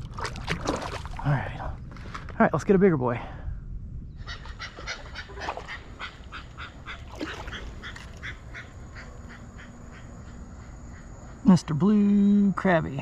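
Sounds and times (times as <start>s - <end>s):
bird calling with harsh notes: 4.1s - 12.6s.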